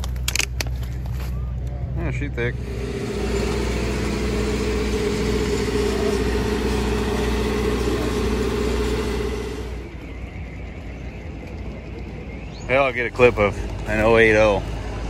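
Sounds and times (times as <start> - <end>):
truck diesel engine idling: 2.4 - 9.9.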